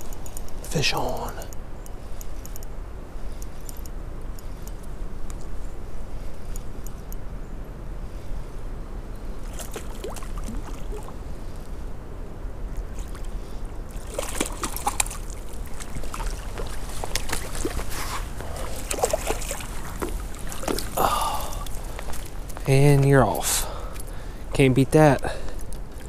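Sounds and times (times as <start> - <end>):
gear clicks and rustles: 0.0 - 7.2, 12.8 - 26.0
wind rumbling on microphone: 0.0 - 24.6
fish splashing at water surface: 9.4 - 11.2, 13.9 - 22.4.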